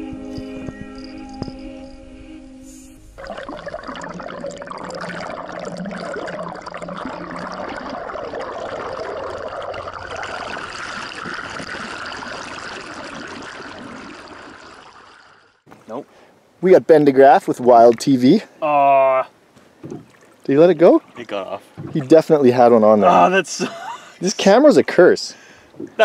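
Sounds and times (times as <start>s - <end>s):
music: 0.0s - 3.2s
muffled underwater water rushing: 3.0s - 15.7s.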